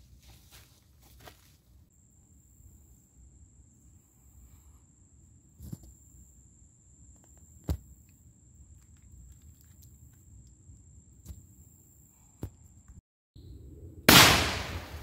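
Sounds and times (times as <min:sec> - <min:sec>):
loud shotgun shot: 0:14.1 - 0:15.0.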